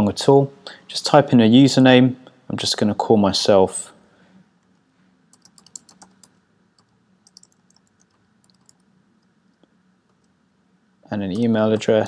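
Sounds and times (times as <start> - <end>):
typing on computer keyboard: 5.4 - 8.9.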